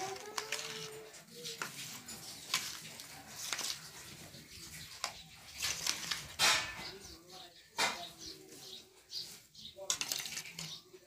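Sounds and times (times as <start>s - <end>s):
spoon mixing salad in bowl: 0.0s - 6.8s.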